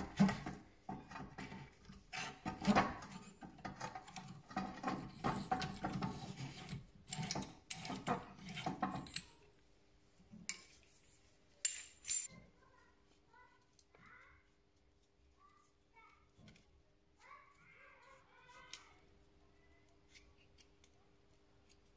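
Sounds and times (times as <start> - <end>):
metal tool clinking and scraping: 1.0 - 9.5, 11.6 - 12.4.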